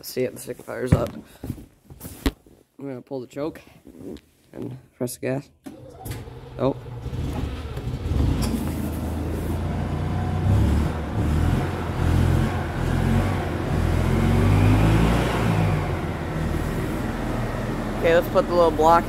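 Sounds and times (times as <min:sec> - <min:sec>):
golf cart engine revving: 0:05.7 - 0:19.0.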